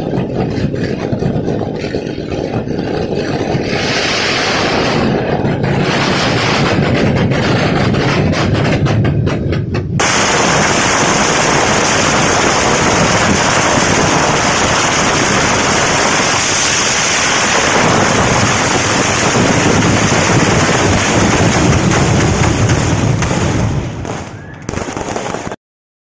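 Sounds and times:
fireworks bangs and crackle: 0.0 - 25.6.

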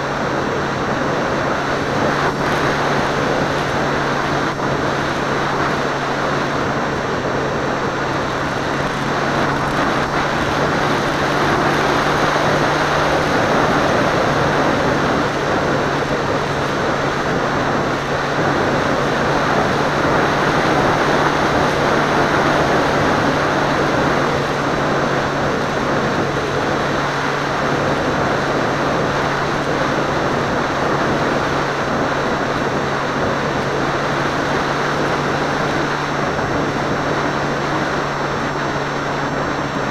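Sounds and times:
airplane engine and propeller: 0.0 - 39.9.

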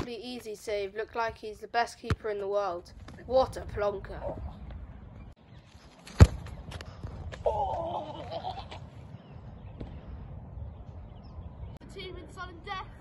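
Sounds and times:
football kicked thump: 6.1 - 6.6, 9.8 - 10.0
wavering vocal cry: 7.4 - 8.8.

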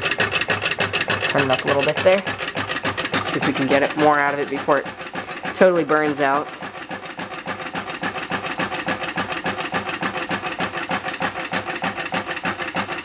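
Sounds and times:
engine rhythmic rubbing and scraping: 0.0 - 13.0.

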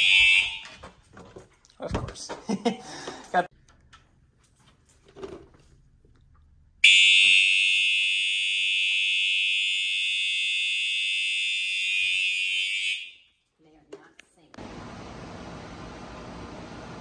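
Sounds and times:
fire alarm horn: 0.0 - 0.9, 6.8 - 13.4.

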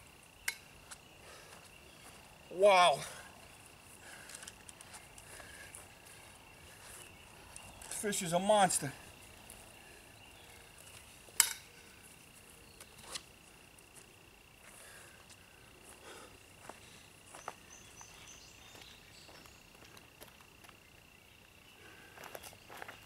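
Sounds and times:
crickets trilling: 0.0 - 23.0
footsteps on grass: 0.8 - 2.4, 3.3 - 9.7, 13.9 - 20.8.

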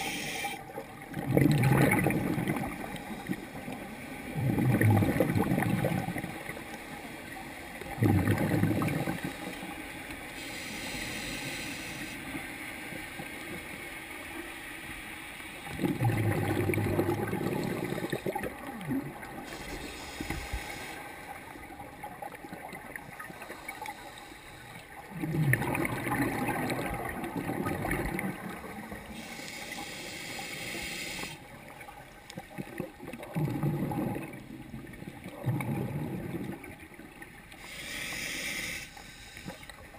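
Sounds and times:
exhaled bubbles rushing: 0.9 - 3.0, 4.3 - 6.5, 7.8 - 9.3, 15.6 - 19.4, 25.0 - 28.9, 32.6 - 37.2.

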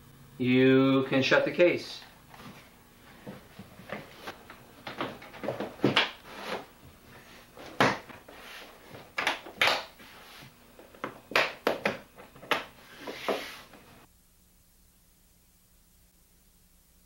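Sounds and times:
plastic knocking on plastic: 10.8 - 12.7.

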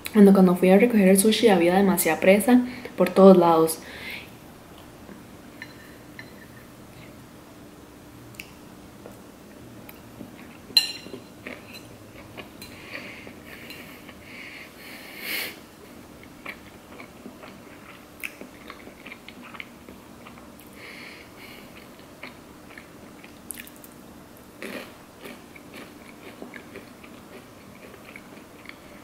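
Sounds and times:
wet chewing and mouth clicks: 16.2 - 20.8, 21.8 - 23.9.

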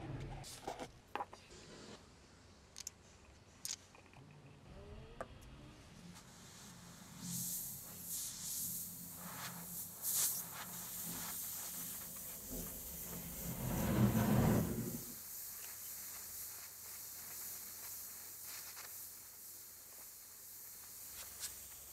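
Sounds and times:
torch flame hissing: 6.1 - 21.9.

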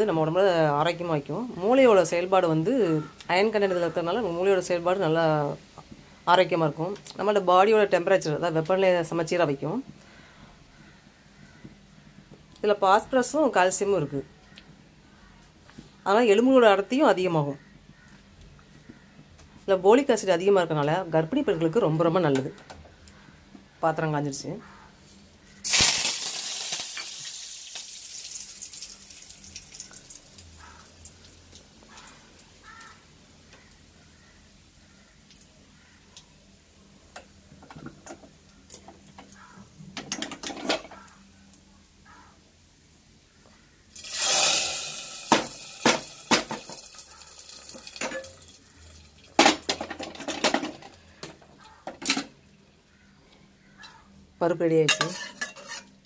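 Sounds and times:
oil crackles: 25.6 - 33.8, 43.9 - 50.2
hot oil sizzling: 25.6 - 37.6, 43.9 - 50.8
metal pan and spoon clinking: 44.0 - 48.6, 54.9 - 56.0.

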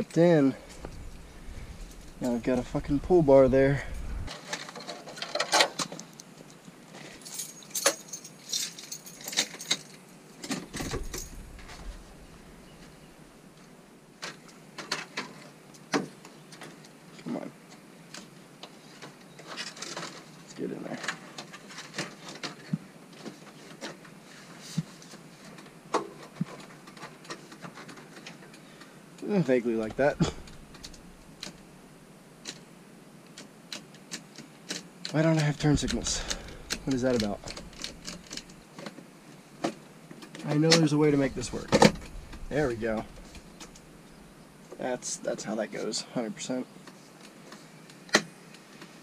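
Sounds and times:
hardware jingling: 7.2 - 10.0, 10.7 - 12.7.

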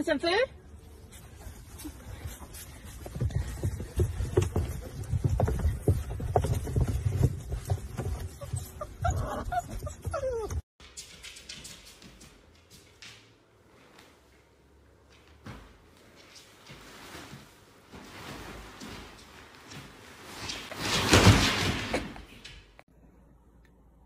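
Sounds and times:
puppies scuffling and thumping: 1.0 - 14.0, 15.1 - 22.7
puppy whining: 7.8 - 10.7
puppies squeaking and yelping: 8.1 - 10.7.

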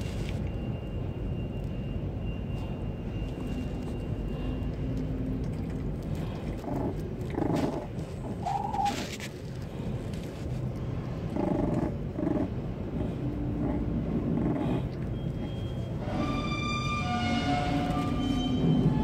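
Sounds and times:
puppy whining: 11.3 - 17.0.

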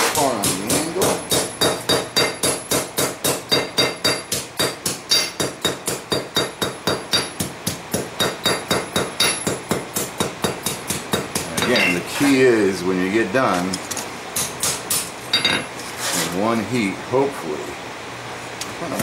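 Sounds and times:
hammer striking metal on anvil: 0.0 - 12.1.

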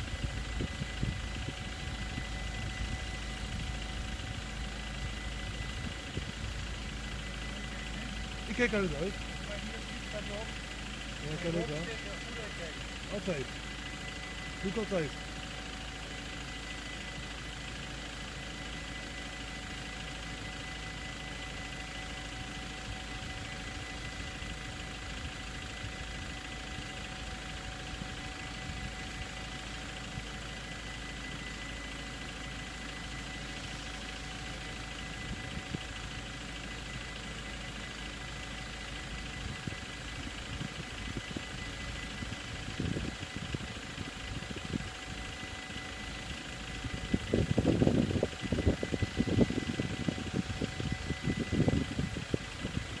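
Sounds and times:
low rumbles: 0.0 - 19.8, 38.5 - 53.0
low traffic hum: 0.0 - 53.0.

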